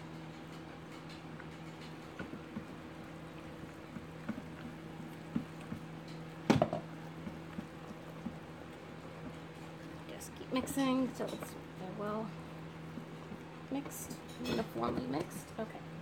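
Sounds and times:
spoon squelching thick soap: 1.7s - 15.6s.

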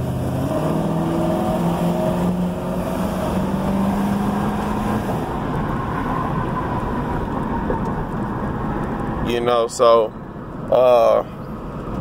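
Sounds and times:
car engine accelerating: 0.0s - 9.6s
road and tyre noise: 0.0s - 12.0s.

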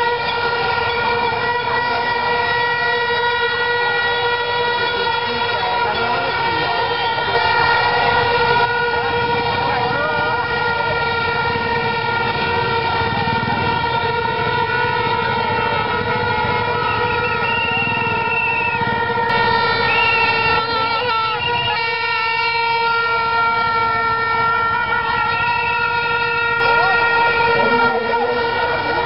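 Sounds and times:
crowd noise: 0.0s - 29.0s
horn holding steady note: 0.0s - 29.0s
whistles trilling: 16.8s - 18.9s, 19.8s - 20.6s.

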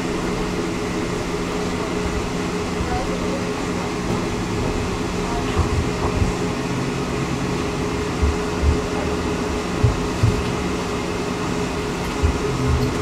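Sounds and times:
tram cabin hum: 0.0s - 13.0s
low thumps over track: 4.0s - 6.6s, 8.1s - 10.7s, 12.0s - 13.0s.

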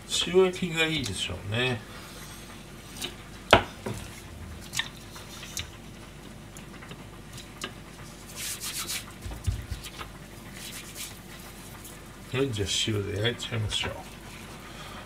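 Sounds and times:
hands rubbing plastic cutting board: 8.3s - 12.0s.

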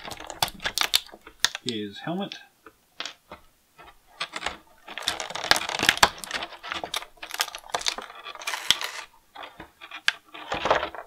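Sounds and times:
plastic bag crinkling: 0.0s - 1.8s, 4.2s - 9.6s.

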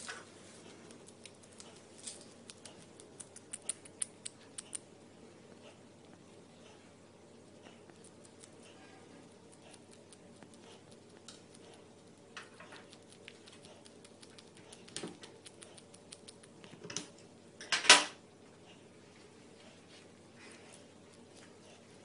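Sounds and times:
bat clicks and ticks: 2.4s - 4.9s, 9.6s - 16.6s.

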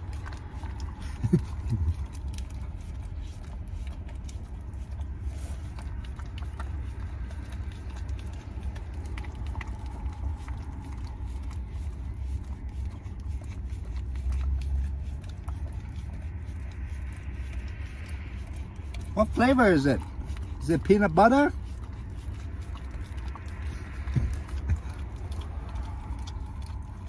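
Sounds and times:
dog licking and chewing: 0.0s - 27.0s
steady low rumble: 0.0s - 27.0s.

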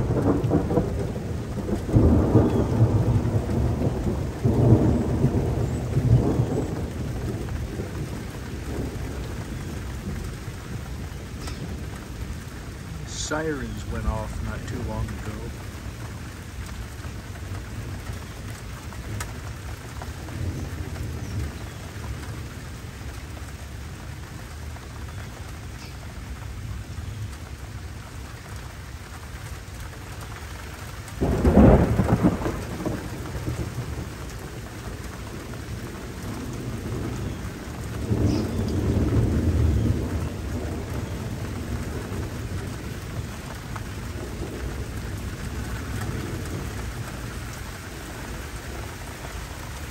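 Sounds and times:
loud thunderclap: 0.0s - 12.2s, 12.9s - 16.0s, 31.2s - 43.4s
rolling rumble of thunder: 0.0s - 49.9s
steady rain hiss: 0.0s - 49.9s.

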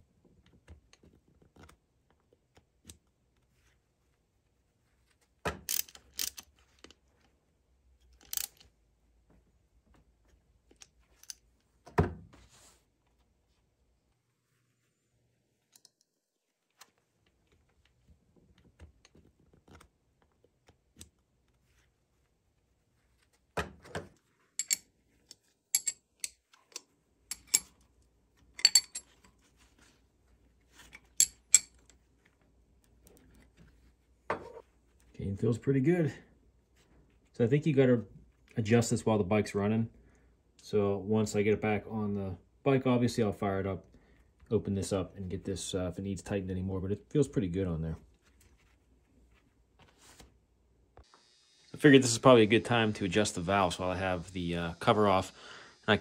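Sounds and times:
tools and metal parts clanking: 5.6s - 6.9s, 8.1s - 8.7s, 24.5s - 27.9s, 28.5s - 29.4s, 30.8s - 32.0s.

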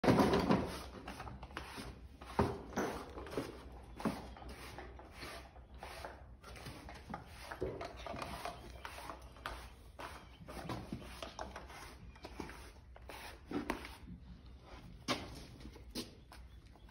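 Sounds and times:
brush rubbing horse coat: 3.4s - 7.6s, 8.2s - 14.1s.

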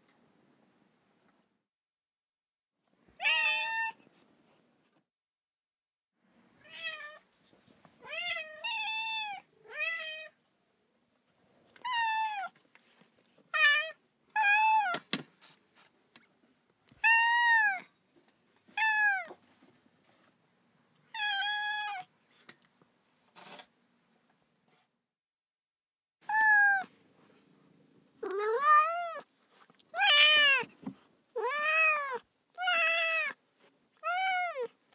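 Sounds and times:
cat meowing: 3.2s - 4.0s, 6.6s - 7.2s, 17.0s - 17.9s, 18.8s - 19.4s, 21.1s - 22.1s, 26.2s - 26.9s, 28.2s - 29.3s, 29.9s - 30.7s, 31.4s - 33.4s, 34.0s - 34.8s.

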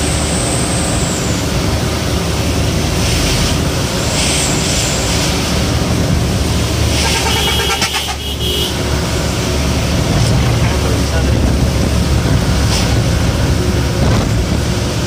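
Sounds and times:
bus engine rumble: 0.0s - 15.0s
tyres hissing on wet road: 0.0s - 15.0s
short pitched tone: 6.9s - 8.3s.

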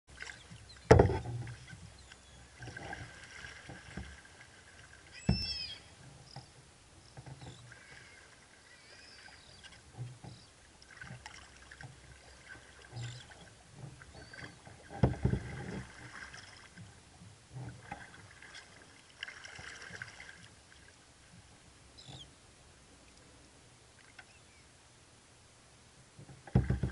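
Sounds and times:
paddle splashing in water: 0.1s - 6.5s, 7.1s - 21.0s, 26.3s - 26.9s
paddle knocks: 0.2s - 1.9s, 5.2s - 6.5s, 12.6s - 18.1s, 26.2s - 26.9s.

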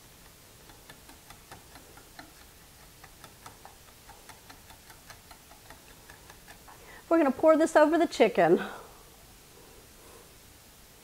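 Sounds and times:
whisk clicking against glass cup: 0.6s - 6.8s.

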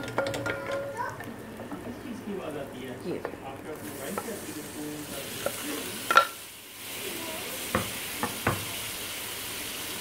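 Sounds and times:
wooden spoon knocking pot: 0.0s - 0.9s
tomatoes sizzling in pot: 0.0s - 10.0s.

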